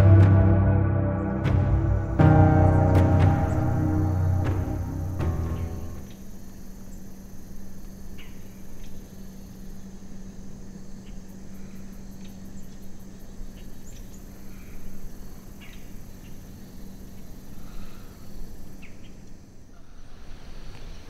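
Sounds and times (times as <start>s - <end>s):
steady low hum: 0.0s - 7.0s
insects chirring: 2.2s - 21.0s.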